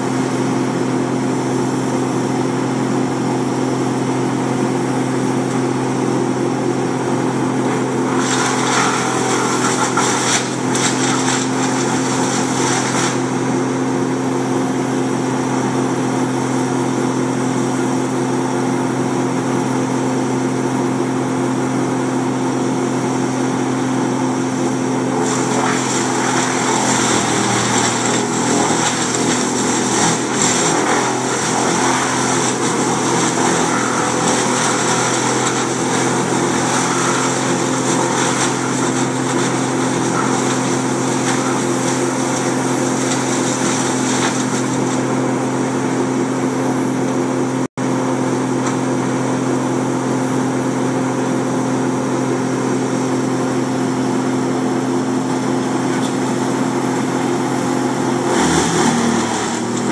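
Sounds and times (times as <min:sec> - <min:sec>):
heavy equipment engines running: 0:21.6 - 0:47.6.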